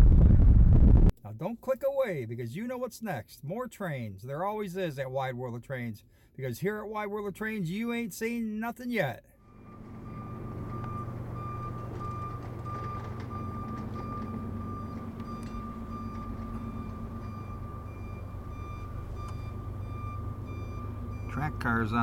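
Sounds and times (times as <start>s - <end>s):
low engine drone: 9.4s - 22.0s
railroad crossing warning bell: 9.4s - 22.0s.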